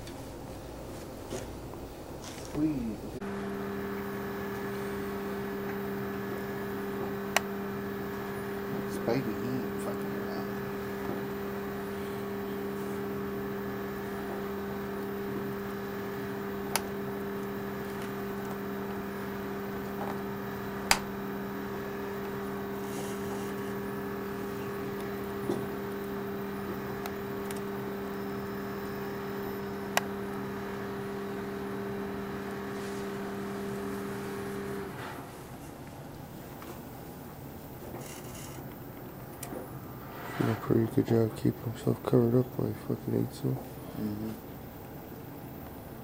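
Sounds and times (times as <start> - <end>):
low motor hum: 0.0 - 35.6.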